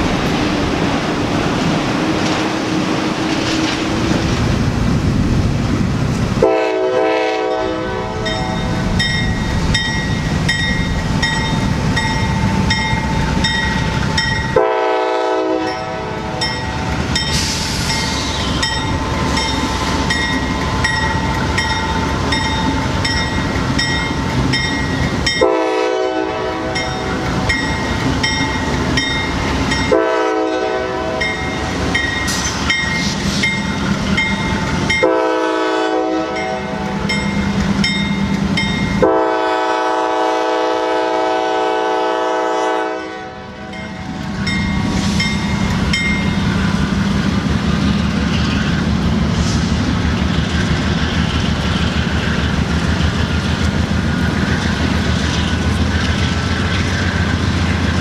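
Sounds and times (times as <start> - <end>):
freight train rumbling on rails: 0.0 - 58.0
locomotive air horn blasts: 6.4 - 8.8, 14.5 - 16.5, 25.3 - 26.9, 29.9 - 31.4, 34.9 - 37.1, 39.0 - 43.9
crossing bell ringing rapidly: 8.2 - 14.6, 15.6 - 25.6, 26.7 - 30.0, 31.2 - 35.1, 36.4 - 39.1, 43.7 - 46.9.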